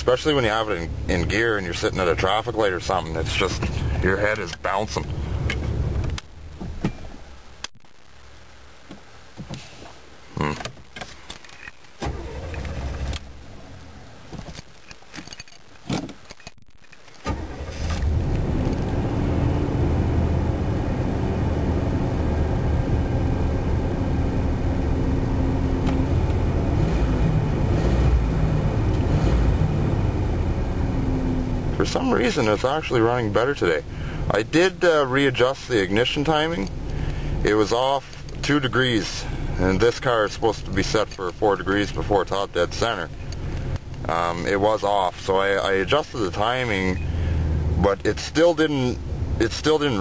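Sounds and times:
car engine starting and idling: 0.0s - 7.6s, 12.0s - 14.3s, 17.2s - 50.0s
handling clicks and knocks: 14.3s - 17.2s.

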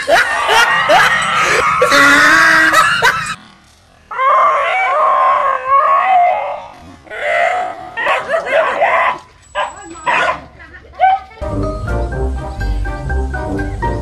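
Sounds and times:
dog yowling in fright: 4.1s - 9.2s.

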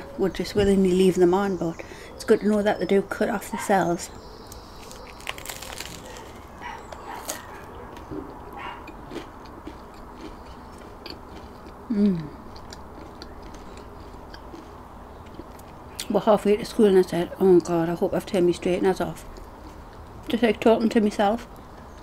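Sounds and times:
chewing crunches: 4.4s - 16.1s
crunching bread crust: 4.5s - 11.8s.

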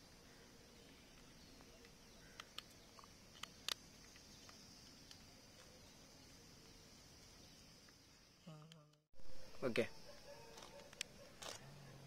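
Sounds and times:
action camera clicks: 10.5s - 11.7s.

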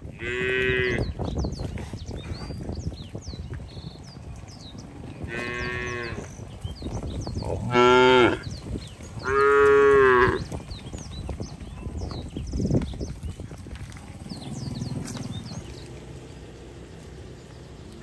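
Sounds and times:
cattle mooing: 5.3s - 6.3s, 7.5s - 8.4s, 9.2s - 10.5s.

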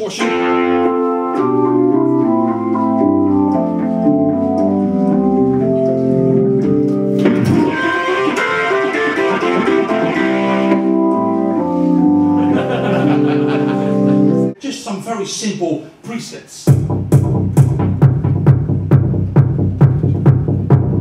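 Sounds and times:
organ synthesizer chords: 0.0s - 14.6s.

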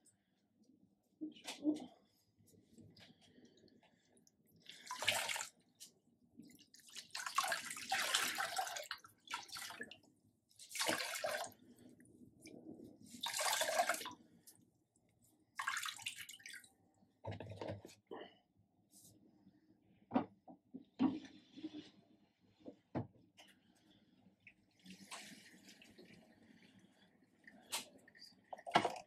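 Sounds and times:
water splashing into basin: 10.7s - 11.6s, 15.6s - 16.7s.

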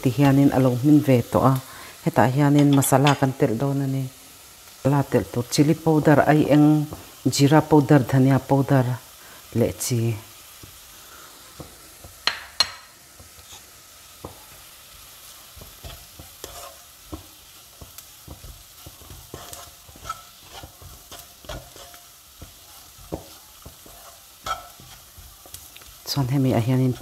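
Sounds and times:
onions sizzling in oil: 0.0s - 27.0s
wooden spatula scraping pan: 13.2s - 14.6s, 15.4s - 27.0s.

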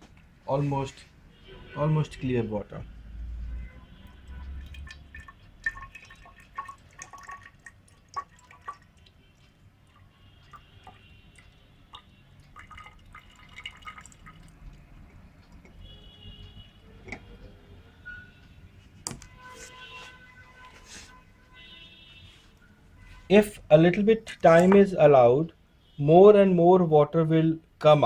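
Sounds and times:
water pouring into a glass cylinder: 4.0s - 15.8s
water dripping: 4.0s - 16.6s.

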